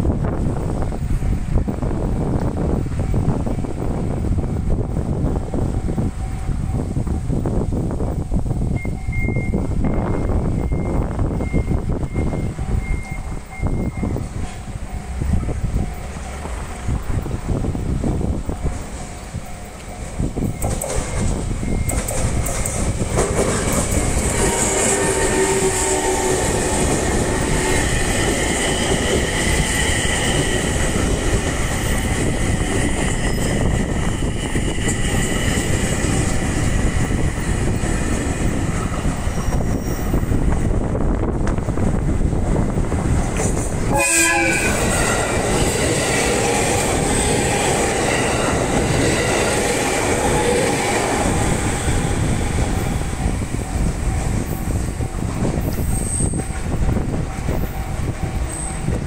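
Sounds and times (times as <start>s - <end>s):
train rumble: 0.0s - 59.0s
train wheels clattering over rails: 9.8s - 44.0s, 44.6s - 59.0s
train horn: 24.1s - 30.5s, 43.9s - 53.6s.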